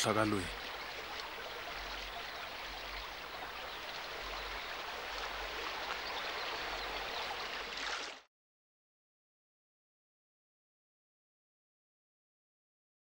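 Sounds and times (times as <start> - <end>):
stream flowing over rocks: 0.0 - 8.3.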